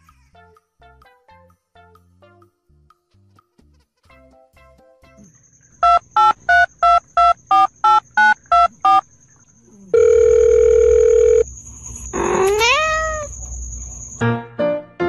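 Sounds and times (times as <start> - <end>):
long phone beep: 5.8 - 9.0, 10.0 - 11.5
telephone keypad beeps: 5.8 - 9.0, 10.0 - 11.4
cat meowing: 12.2 - 13.4.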